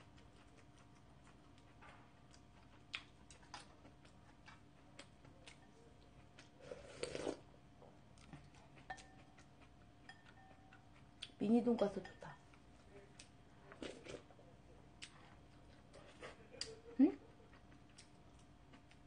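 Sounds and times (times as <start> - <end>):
slurp from a spoon: 6.6 - 7.4.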